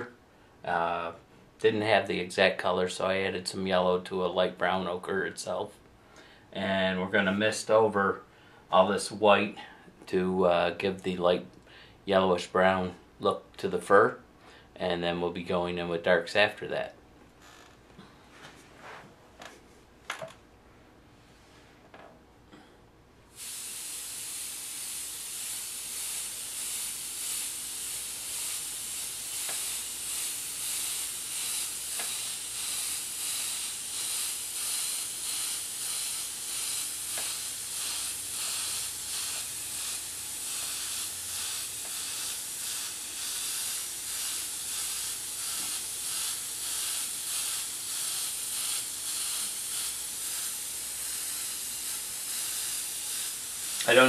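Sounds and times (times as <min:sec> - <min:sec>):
airbrush hissing: 0:23.3 - 0:54.0.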